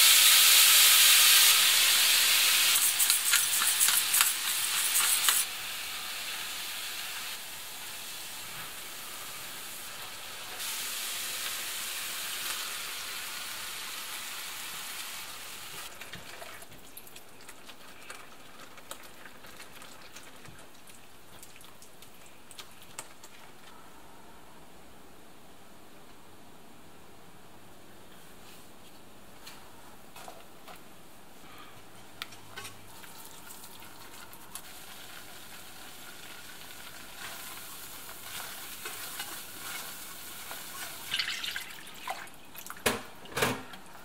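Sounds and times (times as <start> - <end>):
meat sizzling in a pan: 0.0 - 15.9, 33.9 - 42.0.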